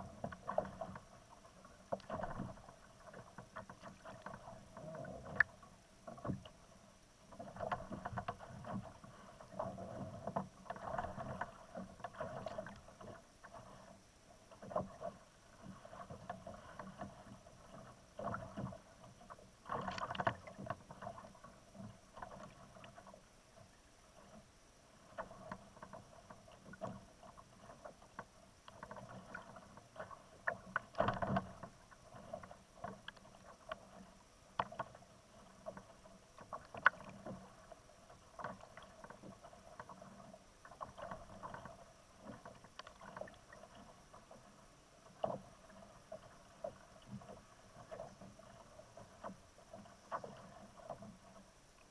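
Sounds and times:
water slapping against kayak hull: 0.0s - 6.6s, 7.3s - 24.4s, 25.0s - 51.9s.

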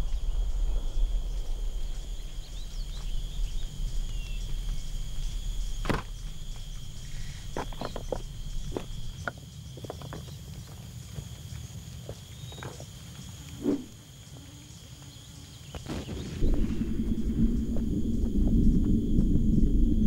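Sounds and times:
low rumble: 0.0s - 9.2s, 16.4s - 20.0s
high insect drone: 0.0s - 20.0s.

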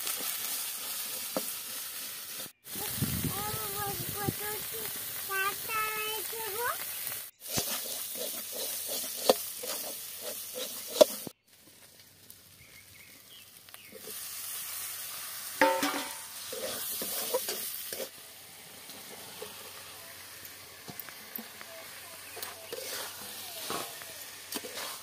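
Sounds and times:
spices sizzling in a wok: 0.0s - 25.0s
metal spatula scraping a pan: 7.4s - 11.3s, 15.6s - 18.1s, 22.2s - 25.0s.

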